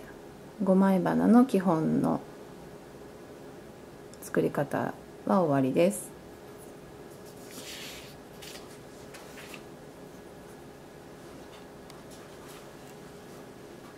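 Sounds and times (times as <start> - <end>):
faint hiss and hum: 0.0 - 13.9
soft rustle: 6.6 - 9.7.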